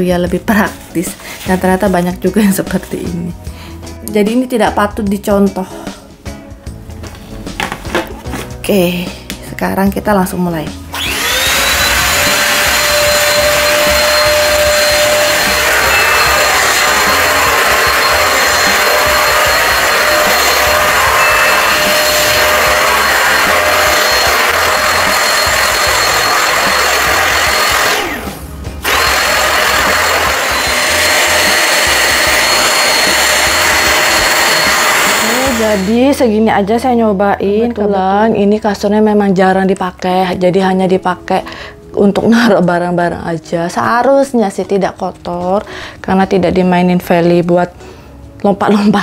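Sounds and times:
handheld vacuum cleaner whine: 0:10.9 - 0:36.1.

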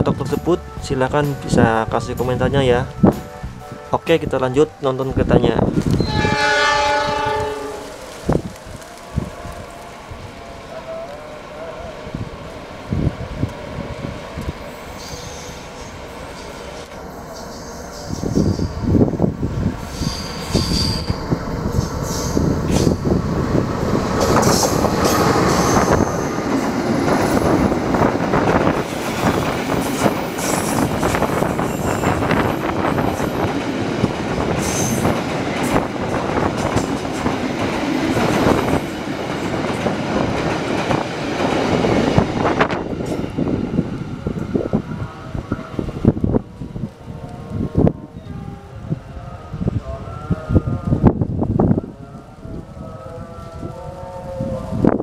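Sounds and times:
high-pitched wheel squeals: 0:05.9 - 0:07.9, 0:14.9 - 0:15.9, 0:19.9 - 0:23.0
train wheels clattering over rails: 0:19.8 - 0:43.6.

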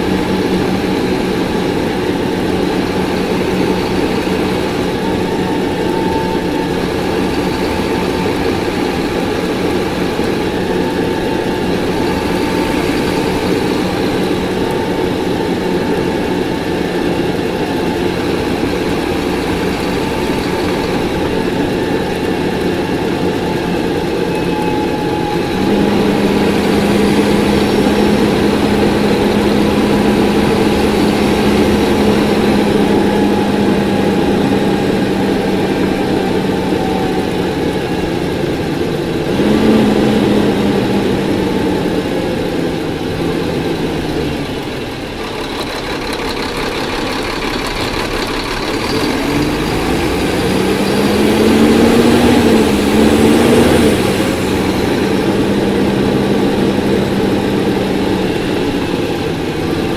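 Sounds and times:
bus diesel engine: 0:00.0 - 0:59.9
rear axle whine: 0:00.0 - 0:59.9.

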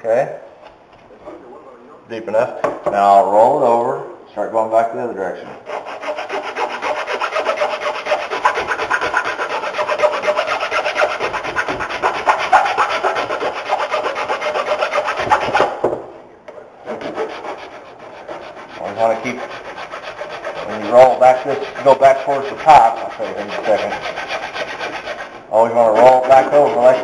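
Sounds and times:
hand file rasping on wood: 0:05.6 - 0:15.8, 0:16.9 - 0:27.0.

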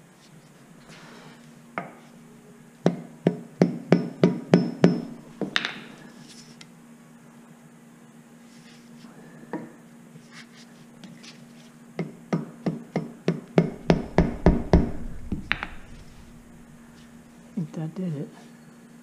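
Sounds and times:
pipe knocking on metal: 0:13.6 - 0:16.0.

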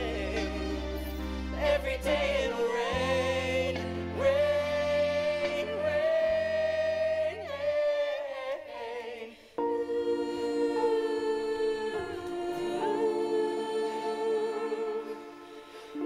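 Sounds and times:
sustained accompaniment: 0:00.0 - 0:08.4, 0:09.6 - 0:16.0.

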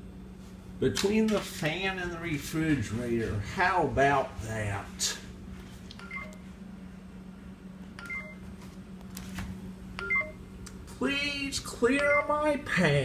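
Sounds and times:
steady low hum: 0:00.0 - 0:13.0
multi-tone electronic beep: 0:10.0 - 0:10.4, 0:12.0 - 0:12.4.

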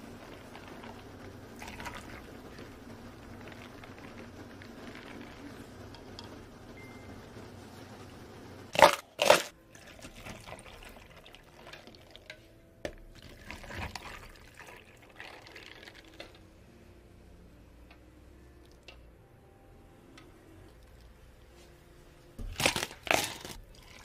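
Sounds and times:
liquid pouring into cups of ice: 0:00.2 - 0:02.6, 0:08.8 - 0:12.3, 0:13.2 - 0:16.5, 0:22.5 - 0:24.0.

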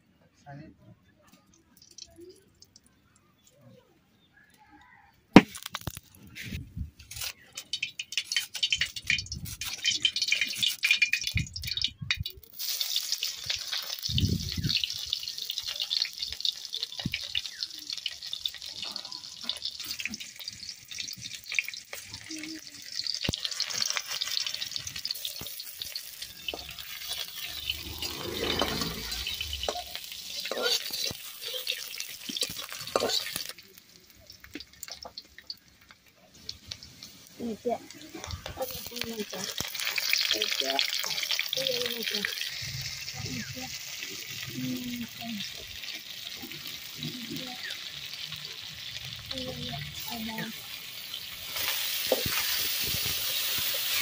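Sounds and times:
metal spatula stirring: 0:07.0 - 0:11.5, 0:23.4 - 0:33.6
onions sizzling in oil: 0:07.1 - 0:54.0.

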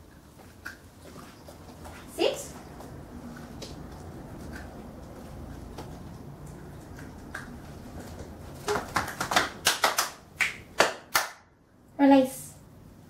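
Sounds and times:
hands clapping: 0:08.6 - 0:11.5.

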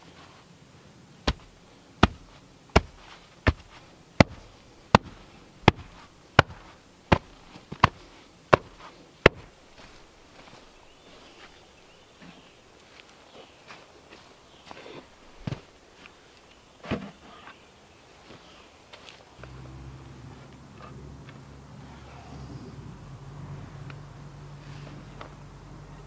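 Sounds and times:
wooden tamper thudding on clay: 0:01.3 - 0:09.5.

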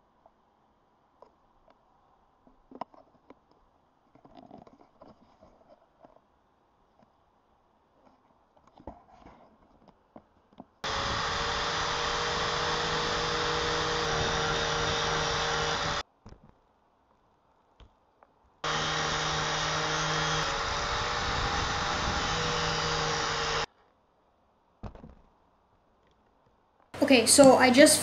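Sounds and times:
angle grinder grinding plastic: 0:10.8 - 0:16.0, 0:18.6 - 0:23.7.

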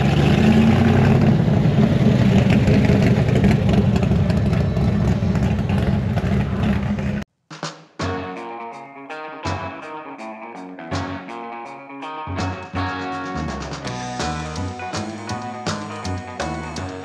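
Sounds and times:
car engine rumbling: 0:00.0 - 0:07.3
guitar music: 0:08.0 - 0:17.0.

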